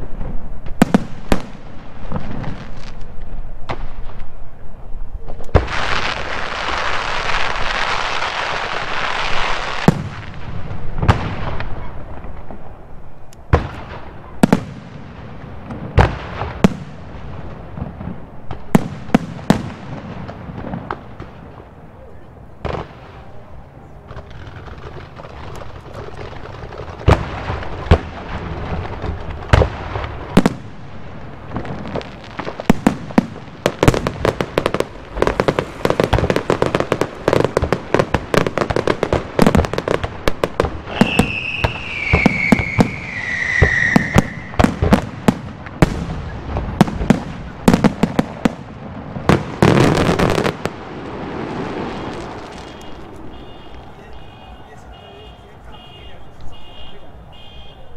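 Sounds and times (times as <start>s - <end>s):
firework bursts and bangs: 0.0s - 56.6s
dense firework crackling: 0.0s - 57.9s
falling whistle: 40.9s - 44.6s, 52.6s - 57.9s.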